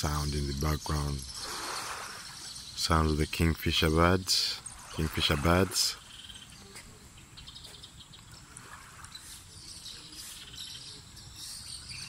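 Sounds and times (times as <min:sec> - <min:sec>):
insect trill: 0:00.0 - 0:06.7
faint bird chirps: 0:00.0 - 0:12.0.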